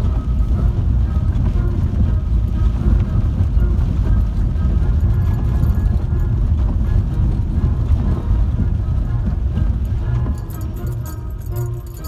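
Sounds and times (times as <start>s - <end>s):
car driving rumble: 0.0s - 12.0s
faint music: 0.0s - 12.0s
tyre noise on wet dirt road: 0.0s - 12.0s.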